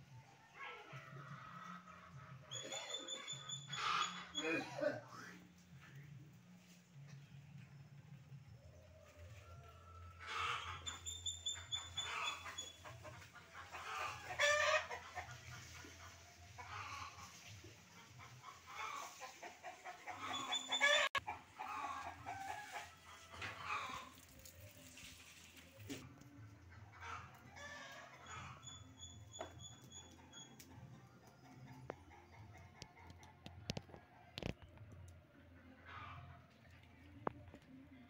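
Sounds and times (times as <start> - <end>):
chickens clucking: 8.8 - 37.8.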